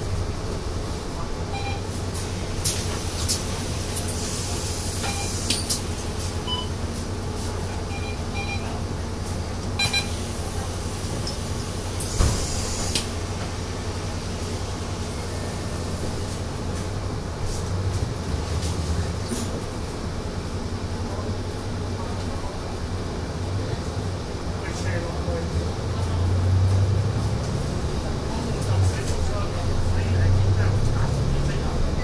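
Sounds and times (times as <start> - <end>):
bus engine idling: 0.0 - 32.0
short electronic beeps: 1.5 - 1.9, 5.0 - 5.4, 7.9 - 8.7, 9.8 - 10.2.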